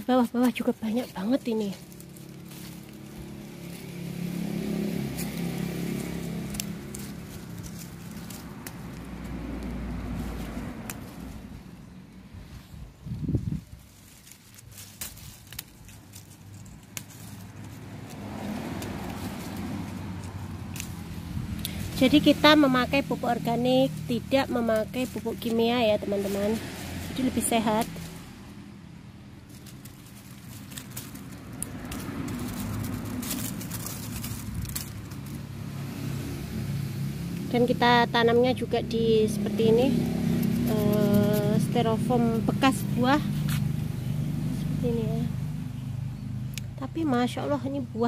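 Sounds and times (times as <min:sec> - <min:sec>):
leaves rustling: 0:00.0 - 0:48.0
vehicle engine humming: 0:00.0 - 0:48.0
beans snapping off vine: 0:04.7 - 0:11.5, 0:14.0 - 0:22.7, 0:29.5 - 0:35.4, 0:46.4 - 0:46.8.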